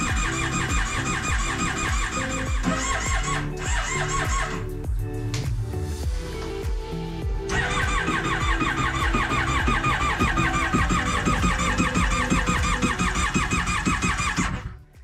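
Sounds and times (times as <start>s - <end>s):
engine cranking on starter: 7.5s - 14.7s.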